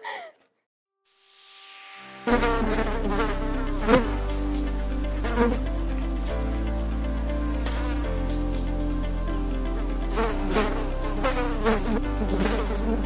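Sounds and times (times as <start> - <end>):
fly buzzing: 2.3 - 4.4, 10.1 - 13.0.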